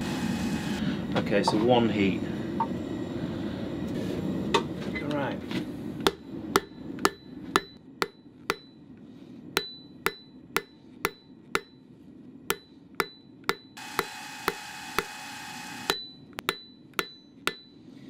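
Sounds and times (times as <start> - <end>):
hammer striking steel on anvil: 6.0 - 8.9, 9.6 - 11.8, 12.5 - 15.2, 15.8 - 17.8.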